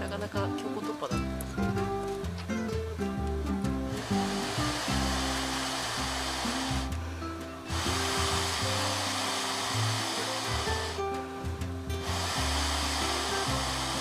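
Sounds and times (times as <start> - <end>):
background music with bass: 0.0 - 14.0
steady rushing hiss: 3.8 - 14.0.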